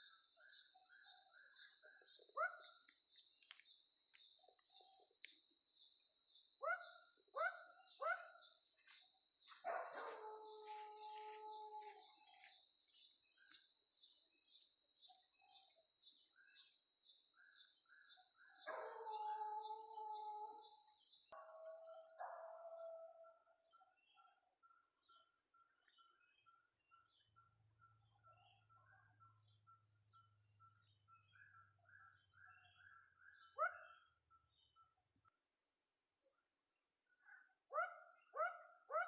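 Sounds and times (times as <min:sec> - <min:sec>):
pulsing drone of insects: 0:00.0 - 0:39.0
dogs howling: 0:09.8 - 0:12.2, 0:18.7 - 0:20.7, 0:21.4 - 0:23.3.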